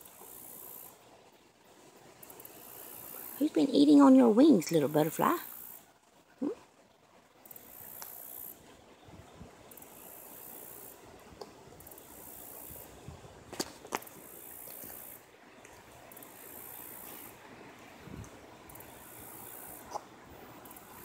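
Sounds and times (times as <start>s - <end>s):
hissing insect chorus: 0.0s - 1.0s, 2.2s - 5.9s, 7.4s - 8.7s, 9.7s - 11.1s, 11.8s - 13.0s, 14.1s - 15.2s, 16.1s - 17.4s, 18.6s - 21.0s.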